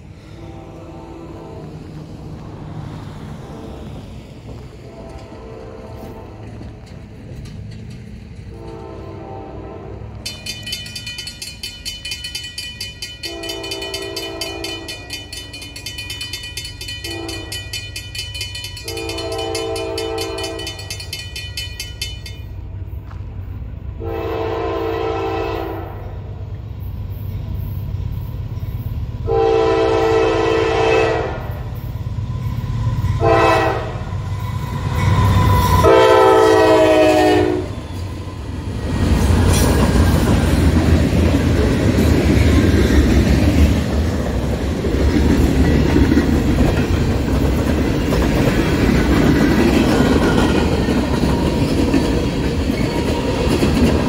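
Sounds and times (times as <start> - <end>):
low rumble of train: 0.0 - 54.0
locomotive air horn blasts: 0.2 - 2.0, 4.8 - 6.6, 8.5 - 10.2, 13.2 - 15.2, 17.0 - 17.7, 18.8 - 20.9, 24.0 - 26.1, 29.3 - 31.7, 33.2 - 34.2, 35.7 - 37.8
crossing bell ringing rapidly: 10.2 - 22.8, 40.2 - 54.0.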